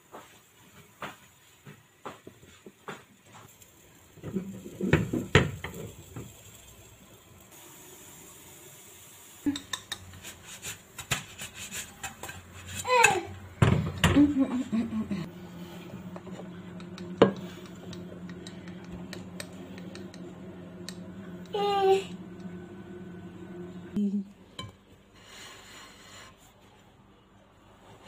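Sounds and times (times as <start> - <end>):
frying pan clattering on stove: 4.2 - 6.3.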